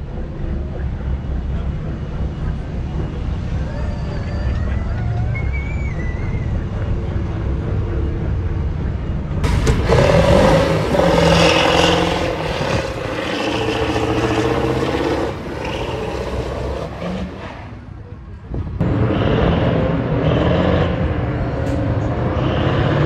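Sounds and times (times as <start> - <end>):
low engine rumble: 0.0 - 23.0
truck diesel engine at full throttle: 6.6 - 23.0.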